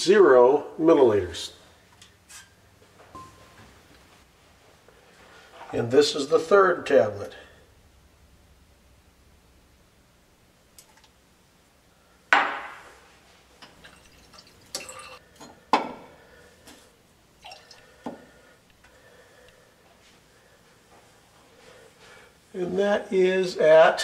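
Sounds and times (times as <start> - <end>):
glassware clinking: 3.1 - 3.6, 13.6 - 16.0.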